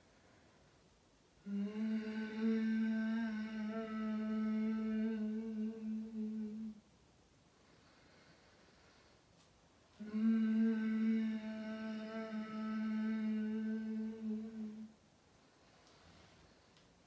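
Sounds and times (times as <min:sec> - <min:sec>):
woman vocalising a long note: 0:01.4 - 0:06.8, 0:10.0 - 0:14.9.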